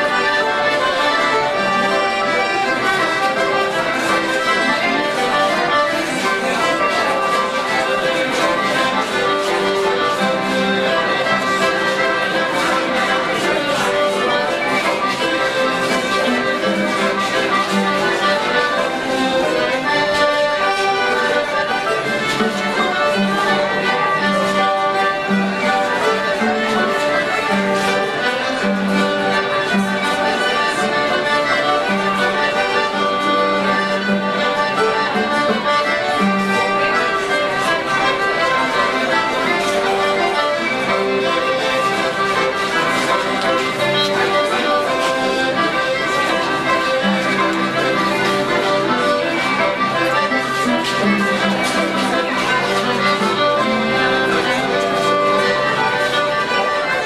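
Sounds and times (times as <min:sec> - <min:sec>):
folk dance music on fiddle and accordion: 0:00.0 - 0:57.0.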